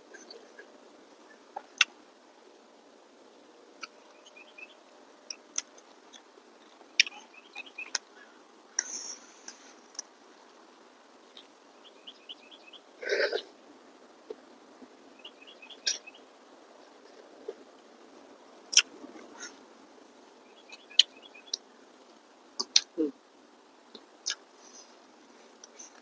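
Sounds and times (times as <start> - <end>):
bird chirping: 0.0 - 2.0, 3.5 - 10.1, 11.2 - 13.5, 14.9 - 17.6, 20.3 - 21.8
lip smacks and mouth clicks: 1.6 - 2.0, 3.8 - 4.0, 5.3 - 7.2, 18.7 - 19.0, 22.6 - 23.0, 23.9 - 24.5.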